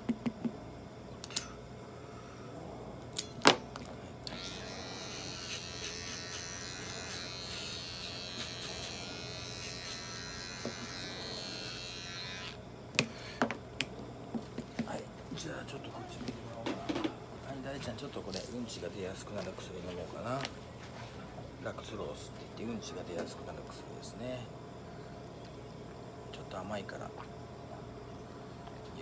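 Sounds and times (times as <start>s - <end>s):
nail clippers snipping: 1.2s - 1.5s, 3.1s - 3.6s
electric grooming tool buzzing: 4.2s - 14.8s.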